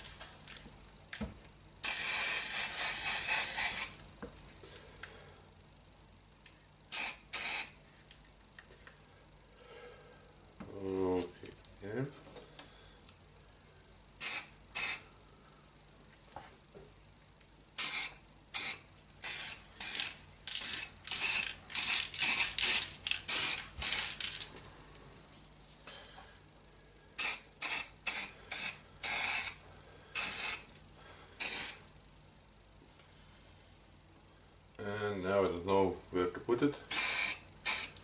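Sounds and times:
aerosol spray can hissing: 1.8s - 4.0s, 6.9s - 7.8s, 14.2s - 15.1s, 17.8s - 24.1s, 27.2s - 29.6s, 30.2s - 30.7s, 31.4s - 31.8s, 36.9s - 38.0s.

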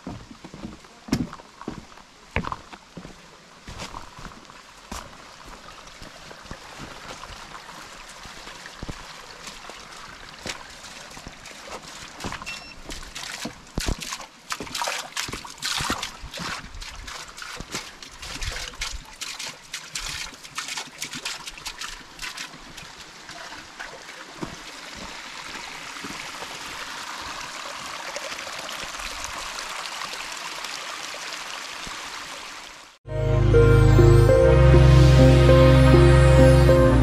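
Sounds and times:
water trickling and splashing: 0.0s - 33.0s
water running steadily: 3.6s - 33.0s.

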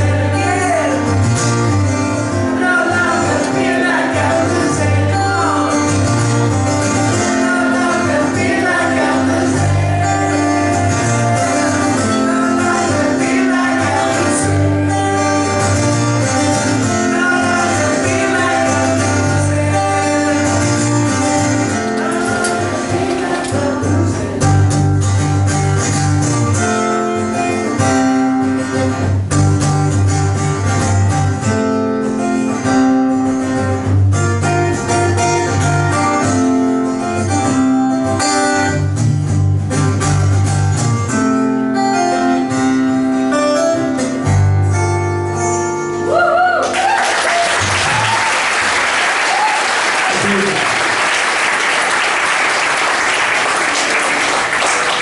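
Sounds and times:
acoustic guitar strumming: 0.0s - 46.2s
audience whooping: 46.1s - 55.0s
audience applauding and cheering: 46.2s - 55.0s.

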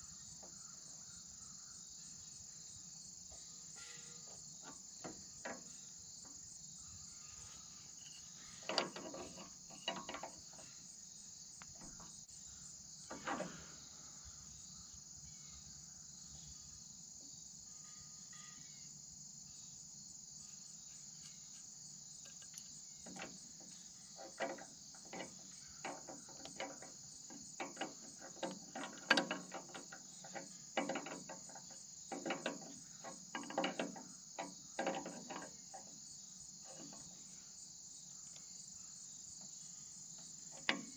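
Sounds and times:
high insect chorus: 0.0s - 40.9s
wrench clinking on metal fittings: 8.0s - 10.8s, 22.2s - 35.9s.

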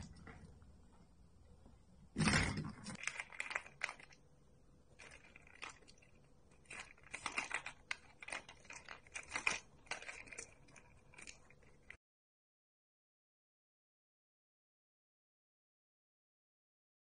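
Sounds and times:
plastic balls rattling in toy: 2.2s - 4.2s, 4.9s - 12.0s.

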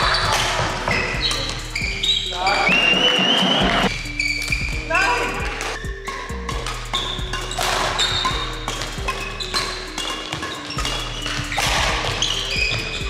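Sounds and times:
background music with steady beat: 0.0s - 13.0s.

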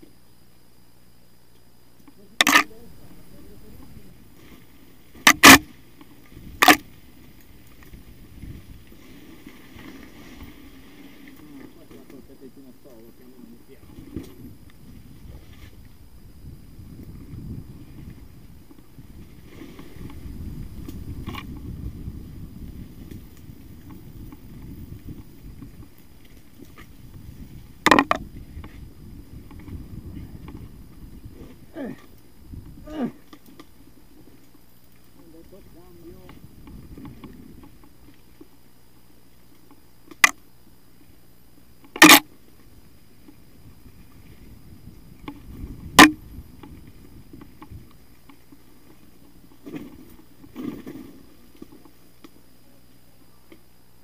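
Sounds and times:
tyres and wind rumbling: 14.0s - 26.0s.

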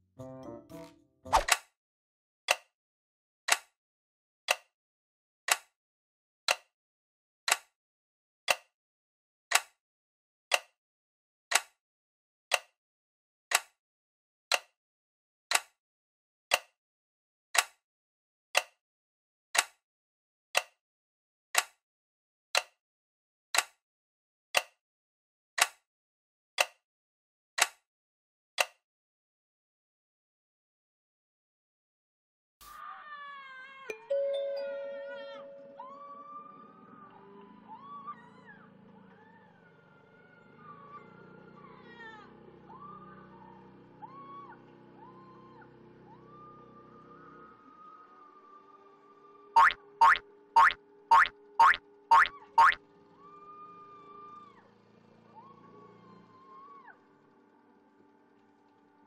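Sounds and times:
clock ticking: 49.6s - 52.8s.

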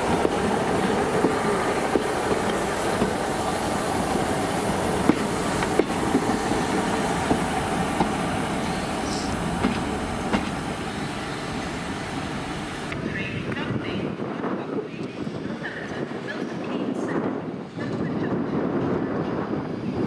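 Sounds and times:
train wheels clicking on rails: 0.0s - 13.8s.

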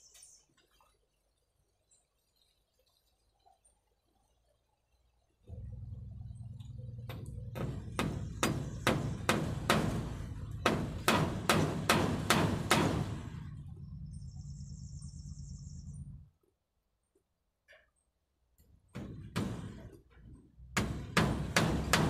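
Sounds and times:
low rumble: 5.5s - 11.2s, 11.8s - 16.3s
hammer hitting nail into wood: 7.5s - 13.2s, 18.9s - 19.9s, 20.8s - 22.0s.

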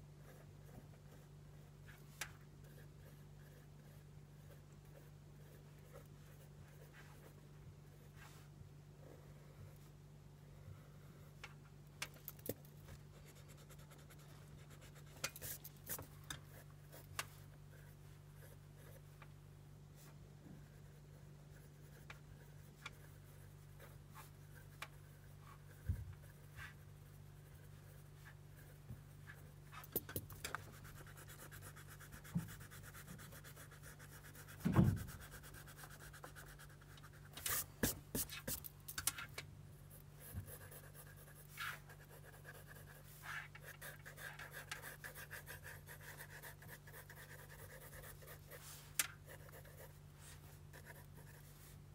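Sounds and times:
steady low hum: 0.0s - 51.9s
pencil scratching on paper: 0.2s - 8.3s, 12.8s - 19.2s, 20.0s - 38.7s, 39.8s - 51.8s
low thump: 34.6s - 35.2s.

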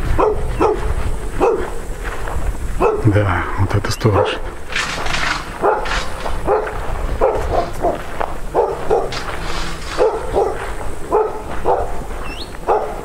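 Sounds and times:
dog barking: 0.1s - 1.8s, 2.8s - 3.2s, 4.1s - 4.5s, 5.2s - 13.0s.

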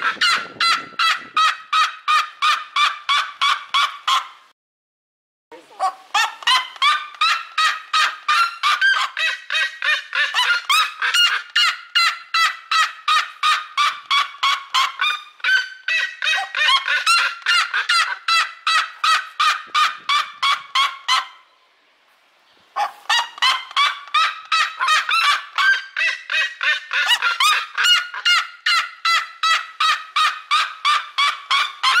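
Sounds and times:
bird yelping calls: 5.7s - 21.7s, 22.5s - 32.0s.

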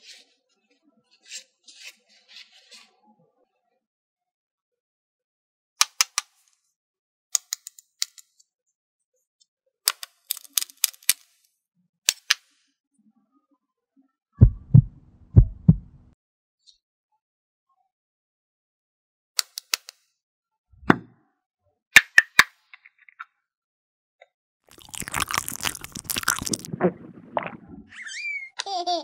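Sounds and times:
electronic heartbeat thumps: 14.4s - 16.1s, 26.7s - 27.9s.

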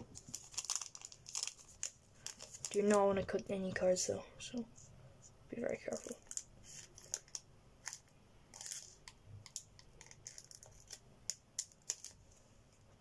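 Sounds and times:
foil wrapper crinkling: 0.1s - 3.1s, 5.8s - 9.0s, 9.6s - 12.2s.

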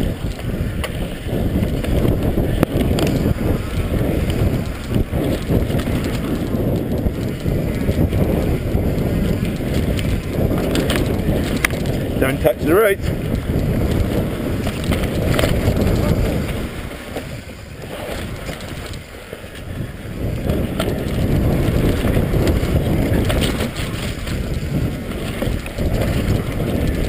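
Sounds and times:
bike rattling and clicking: 0.0s - 27.0s
tyres rumbling on dirt: 0.0s - 27.0s
wind buffeting microphone: 0.0s - 27.0s.

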